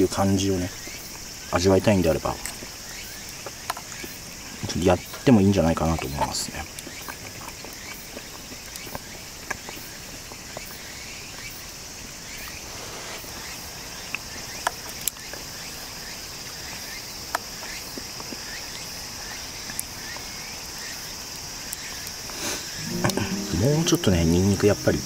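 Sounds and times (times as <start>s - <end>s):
insects chirring: 0.0s - 17.9s.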